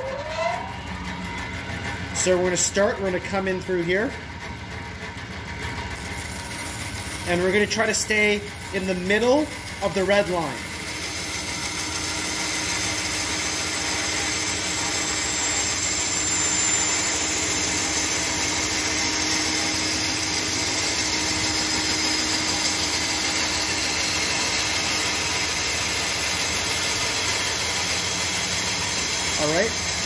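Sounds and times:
bandsaw cutting wood: 6.0 - 30.0.

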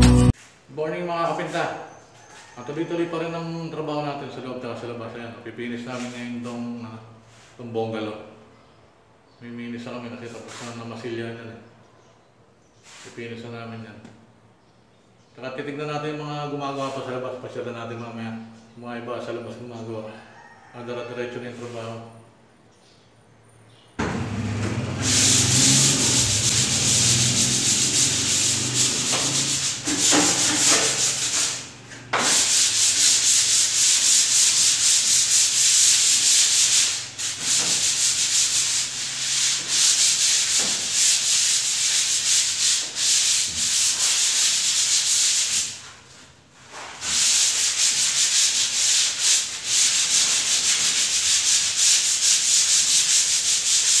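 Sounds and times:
sanding scraping hiss: 25.0 - 54.0.

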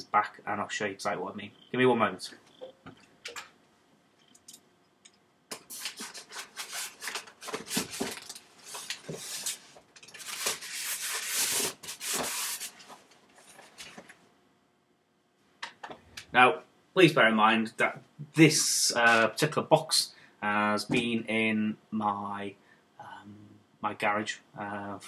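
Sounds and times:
objects being handled: 4.2 - 14.2.

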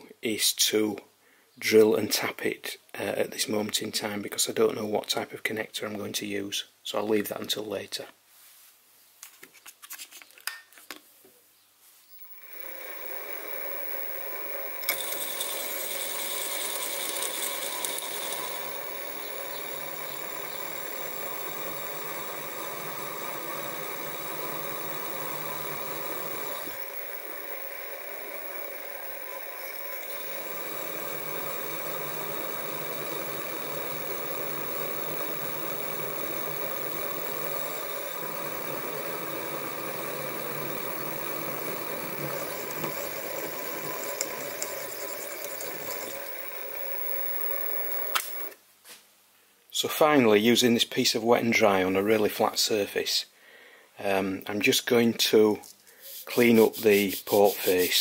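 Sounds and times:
mill motor whining: 12.1 - 48.6
high hiss: 12.2 - 48.5.

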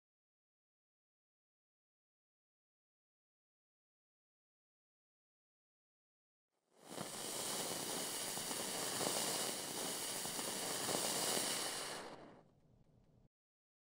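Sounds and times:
faint crackling: 6.8 - 12.5
rushing hiss logo sound effect: 6.9 - 12.2.

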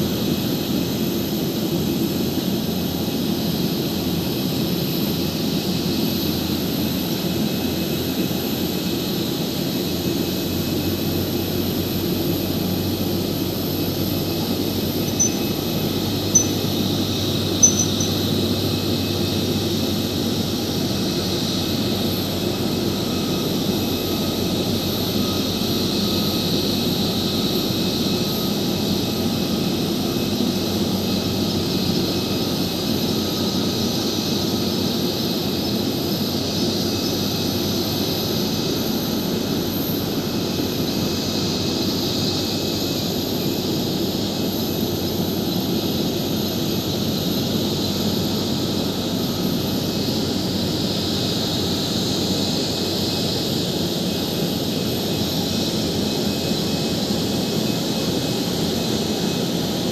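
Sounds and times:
short high beeps: 15.1 - 15.6, 16.4 - 16.6, 17.6 - 18.1.

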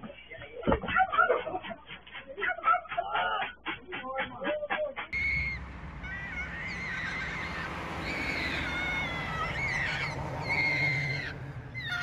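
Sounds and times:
low steady rumble: 5.2 - 12.0
magpie warbling: 5.2 - 12.0.

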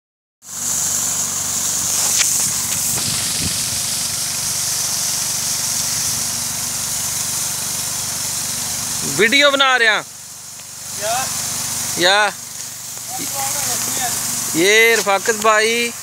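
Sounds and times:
water spraying from garden hose: 0.4 - 16.0
low motor hum: 0.6 - 9.2.

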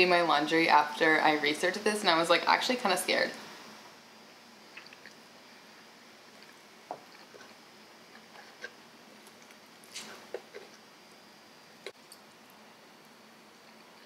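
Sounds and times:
quiet chewing: 4.7 - 5.2, 6.3 - 10.8.

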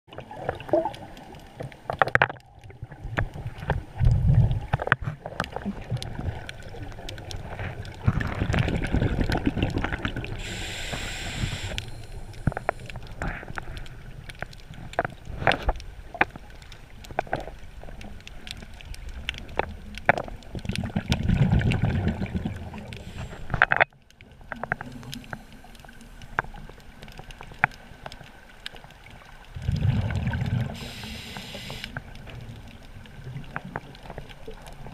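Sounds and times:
underwater exhaled bubbles: 0.1 - 34.9
hiss of inhaled air: 10.4 - 12.9, 23.0 - 23.5, 30.7 - 32.0.

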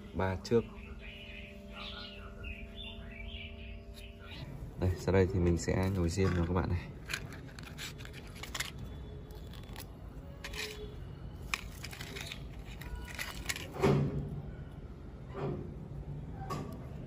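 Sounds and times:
matchstick scraping in metal valve: 5.9 - 13.7.

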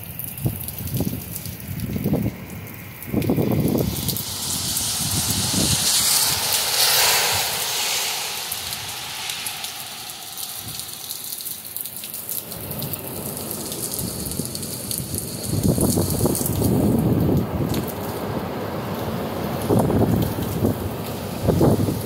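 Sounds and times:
heavy rain falling: 3.0 - 18.9.

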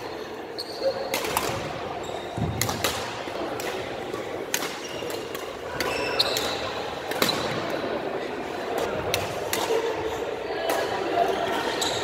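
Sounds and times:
rackets striking shuttlecock: 2.4 - 7.8.

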